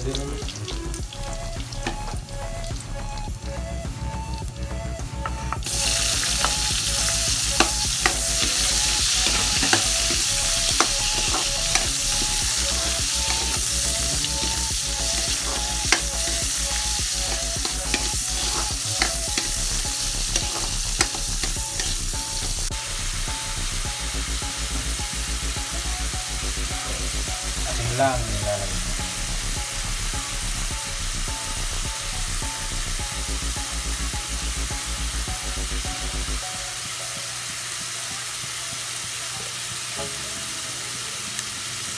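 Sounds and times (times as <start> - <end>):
onions sizzling in hot oil: 0.0 - 4.4, 5.3 - 41.9
spatula scraping a wok: 7.6 - 22.7.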